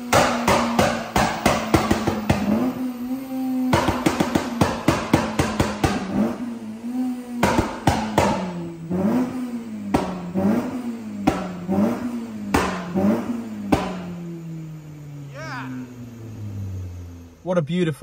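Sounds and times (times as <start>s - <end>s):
exhaust cracking and banging: 0.0s - 14.4s
car engine revving: 0.0s - 18.0s.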